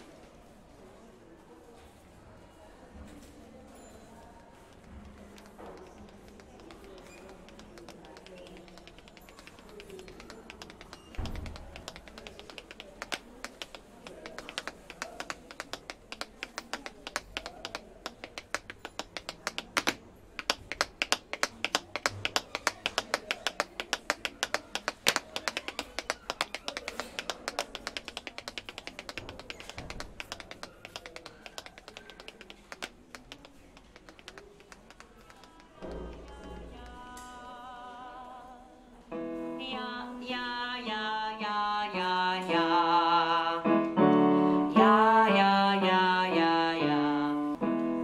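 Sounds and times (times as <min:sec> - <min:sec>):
sharp percussive taps: 0:04.7 - 0:37.1.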